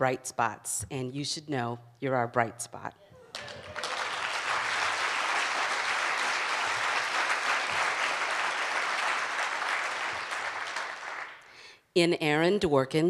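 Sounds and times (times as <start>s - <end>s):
audience applauding: 3.3s - 11.6s.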